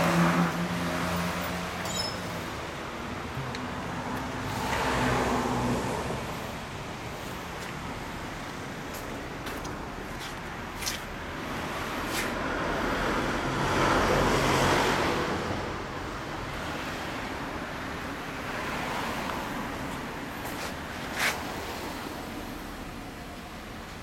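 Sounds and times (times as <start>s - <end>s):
road traffic noise: 0.0s - 24.0s
vehicle passing by: 3.8s - 6.5s.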